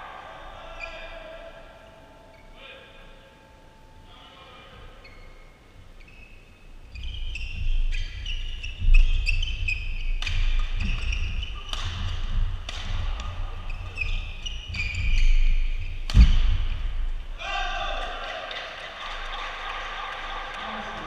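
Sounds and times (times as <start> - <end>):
shoes squeaking on court: 5.0 - 16.8
rackets hitting shuttlecock: 10.2 - 13.3, 16.0 - 16.8.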